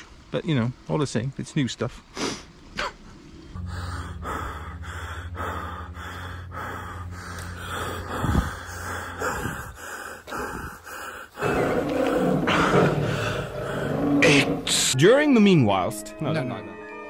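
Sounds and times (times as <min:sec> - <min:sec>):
steady low hum: 0:00.0 - 0:15.0
heavy breathing: 0:03.5 - 0:14.8.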